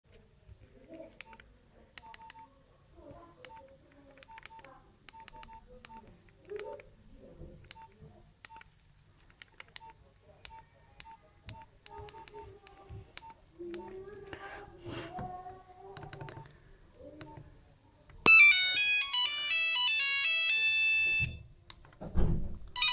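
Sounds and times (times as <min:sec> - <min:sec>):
phone keypad clicks: 0:02.0 - 0:02.4, 0:03.4 - 0:06.8, 0:07.6 - 0:08.7, 0:09.3 - 0:12.4, 0:17.2 - 0:17.4
electronic key-tone beeps: 0:18.3 - 0:21.4.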